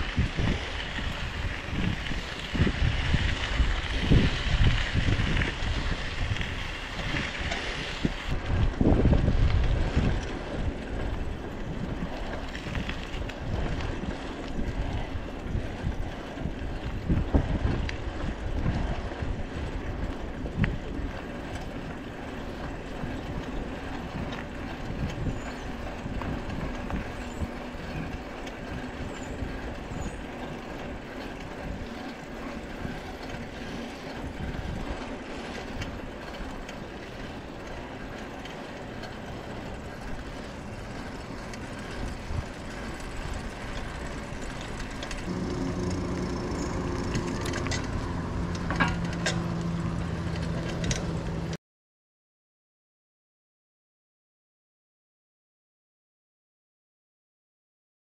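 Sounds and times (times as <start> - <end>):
bicycle tyre and wind noise: 0.0 - 51.6
bike rattles and clicks: 0.0 - 51.6
low hum: 32.1 - 51.6.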